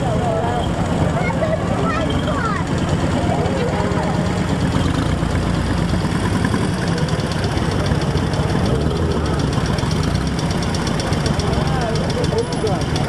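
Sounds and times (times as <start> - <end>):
engine running at low revs: 0.0 - 13.0.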